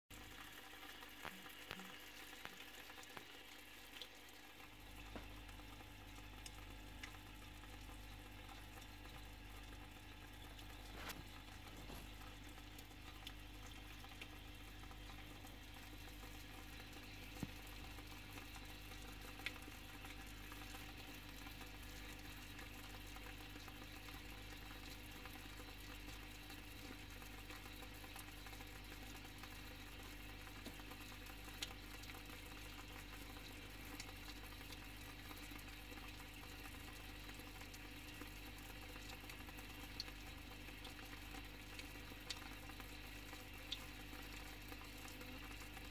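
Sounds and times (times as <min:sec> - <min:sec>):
bubbling water: 0:00.1 - 0:45.9
faint clicks: 0:05.0 - 0:40.1.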